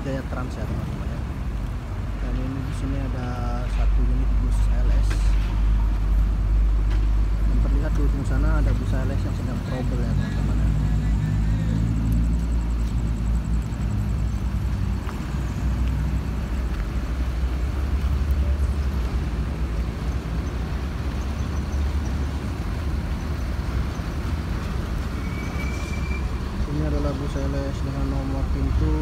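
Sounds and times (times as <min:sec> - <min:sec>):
diesel bus engine idling: 0:06.3 - 0:25.3.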